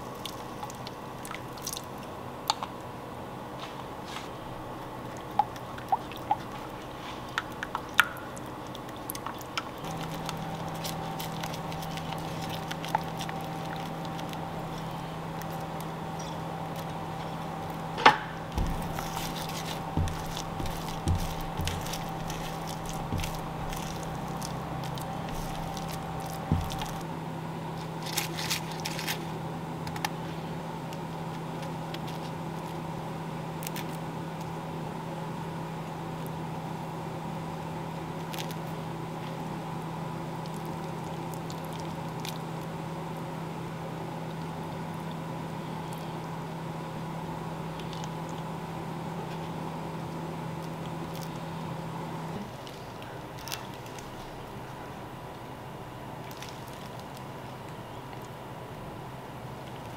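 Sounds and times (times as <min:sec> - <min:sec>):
steady low hum: 0:00.0 - 0:59.9
spatula tapping pan: 0:18.6 - 0:27.0.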